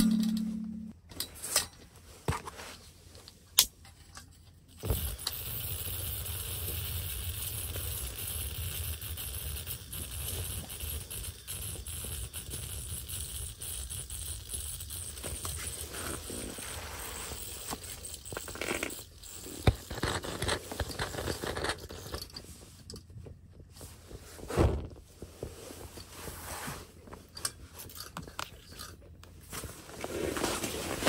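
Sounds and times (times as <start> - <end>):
camp stove burning with hiss: 4.8 - 17.7.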